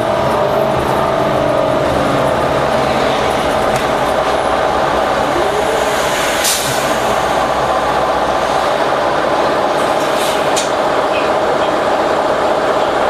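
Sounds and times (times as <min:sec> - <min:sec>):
bus diesel engine running: 0:00.0 - 0:13.0
brief air hisses: 0:06.0 - 0:06.9.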